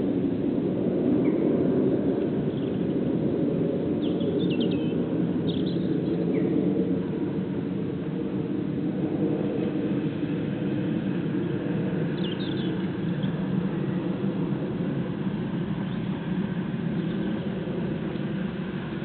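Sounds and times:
aeroplane engine drone: 0.0s - 19.0s
bird chirps: 4.0s - 6.2s, 12.2s - 13.4s.

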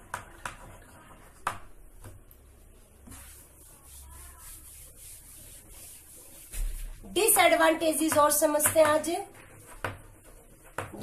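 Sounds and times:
chalk tapping on chalkboard: 0.0s - 2.2s, 3.0s - 11.0s
cloth wiping chalkboard: 2.8s - 11.0s.

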